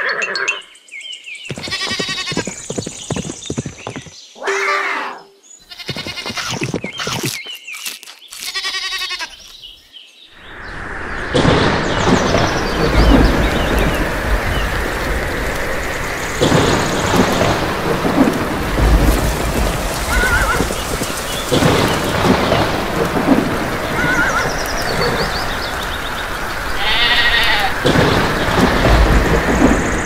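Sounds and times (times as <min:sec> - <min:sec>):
birds chirping: 0:00.0 - 0:30.0
heavy rain: 0:10.4 - 0:30.0
thunder rumbling: 0:10.4 - 0:30.0.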